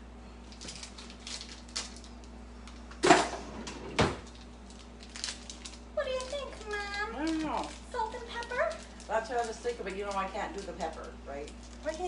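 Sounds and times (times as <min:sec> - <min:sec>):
blade snipping plastic bag: 0:04.3 - 0:12.0.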